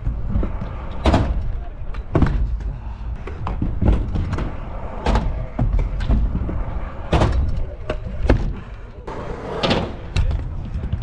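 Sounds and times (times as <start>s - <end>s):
scooter wheels rumbling on concrete: 0.0s - 11.0s
scooter clacking and thudding on ramp: 3.4s - 8.6s.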